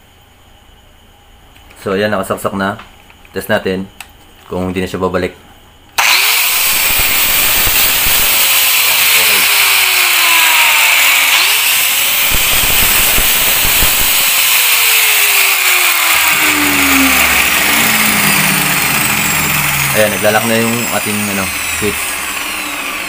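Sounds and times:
angle grinder motor whine: 6.0s - 23.0s.

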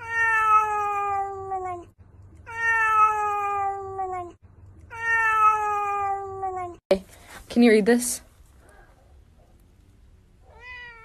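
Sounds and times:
cat meowing: 0.0s - 6.8s, 10.5s - 11.0s.

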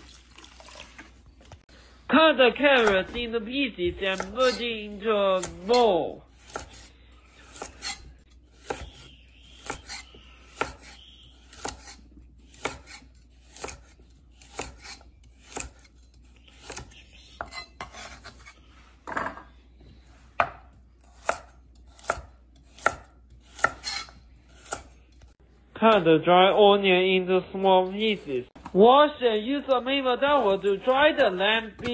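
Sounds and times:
knife chopping carrots on board: 9.6s - 15.9s, 20.4s - 24.9s.

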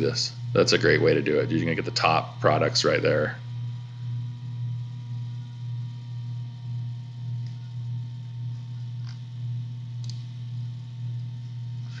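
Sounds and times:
low background hum: 0.0s - 12.0s
faint clicks: 10.0s - 10.3s.

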